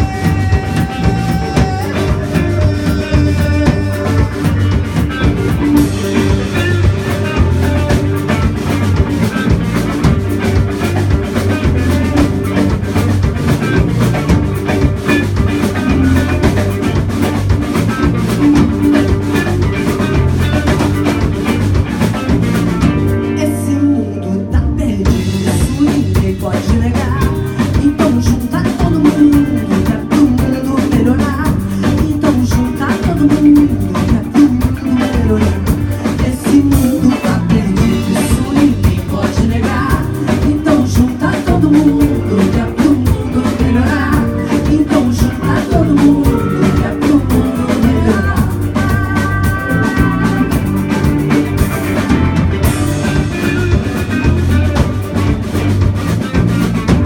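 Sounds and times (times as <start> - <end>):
person singing: 0.0 - 8.4, 23.2 - 55.3
live rock band playing: 0.0 - 57.0.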